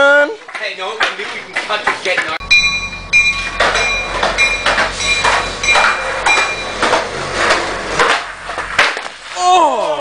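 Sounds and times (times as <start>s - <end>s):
skateboard wheels clacking on concrete: 0.4s - 2.4s, 3.6s - 9.4s
skateboard tail crack: 4.7s - 10.0s.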